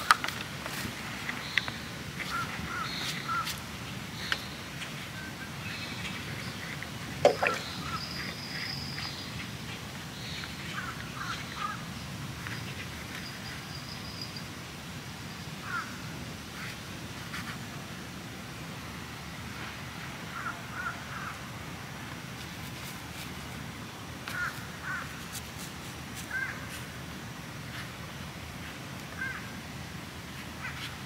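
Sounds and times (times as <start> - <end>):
crows cawing: 15.6 - 15.9, 20.3 - 21.3, 24.3 - 25.1, 29.2 - 29.5.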